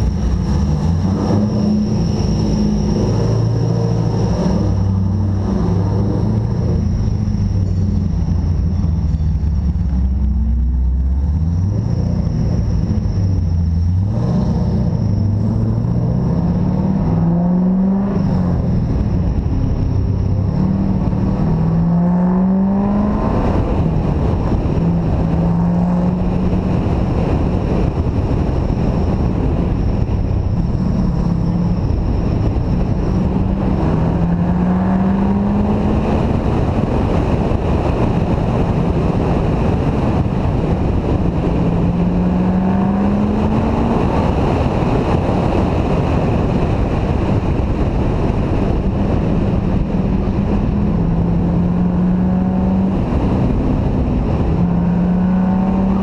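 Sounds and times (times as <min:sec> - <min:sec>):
car engine accelerating: 0:00.0 - 0:56.0
wind noise on microphone: 0:00.0 - 0:56.0.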